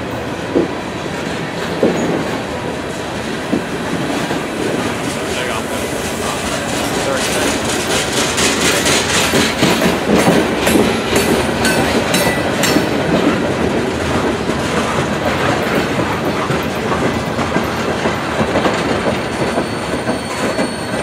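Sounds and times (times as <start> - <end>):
train cars rolling past: 0.0 - 21.0
wheels clicking over rail joints: 3.3 - 21.0
wheel squeal: 19.3 - 21.0.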